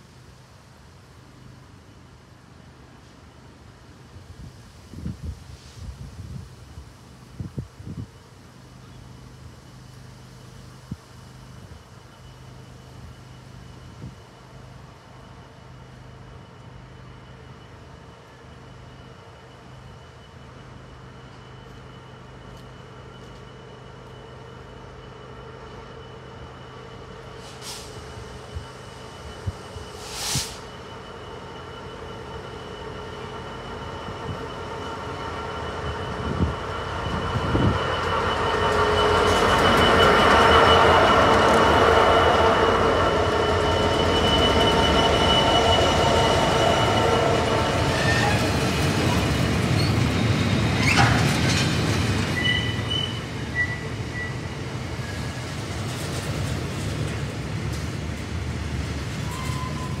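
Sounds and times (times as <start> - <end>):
diesel locomotive passing: 0.0 - 60.0
wheel squeals: 29.3 - 56.8, 59.2 - 60.0.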